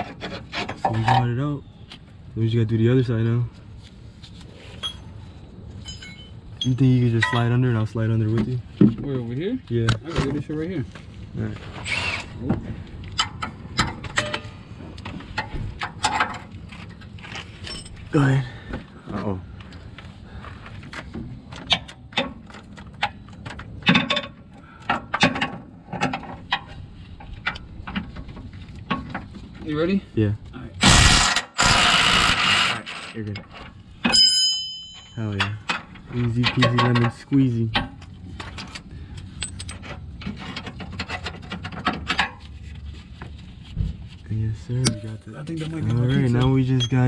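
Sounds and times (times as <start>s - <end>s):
hand tools clanking on metal: 5.8s - 7.7s, 32.6s - 42.3s.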